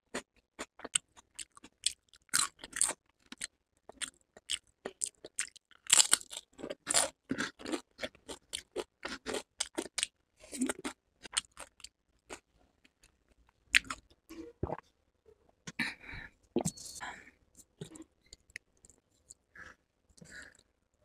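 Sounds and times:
crunching tortilla chips: 0:04.5 - 0:07.8.

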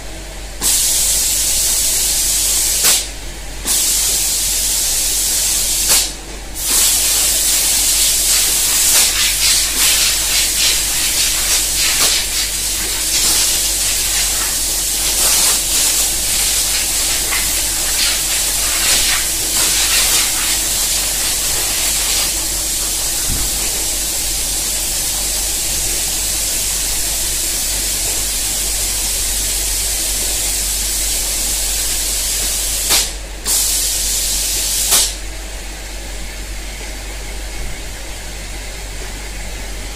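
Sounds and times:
low machine hum: 0:00.0 - 0:39.9
spray guns hissing: 0:03.7 - 0:25.0.

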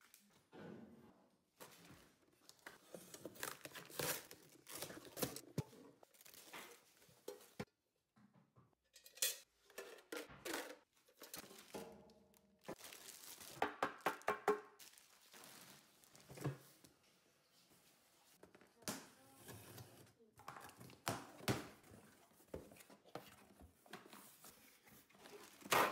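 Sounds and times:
cardboard packaging rustling: 0:02.4 - 0:07.6, 0:12.6 - 0:13.6, 0:14.8 - 0:16.4
plastic film crackling: 0:11.5 - 0:13.8, 0:14.8 - 0:16.3.

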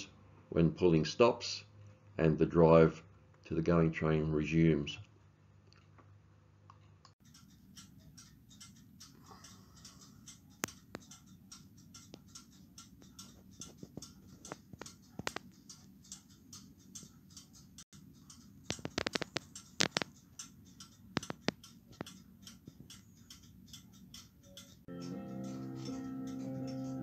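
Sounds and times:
sharp clicks: 0:06.7 - 0:27.0
clock ticking: 0:07.2 - 0:27.0.

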